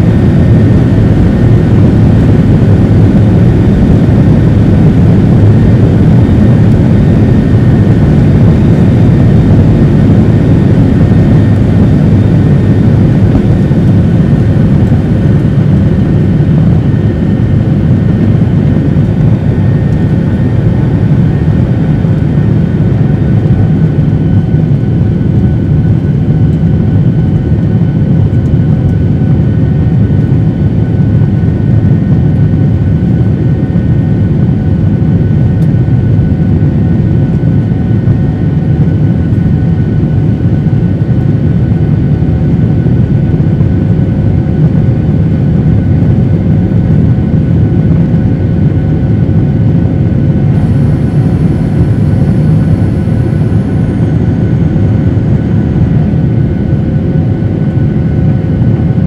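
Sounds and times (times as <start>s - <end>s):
faint engine whine: 0.0s - 59.0s
jet engines deep rumble: 0.0s - 59.0s.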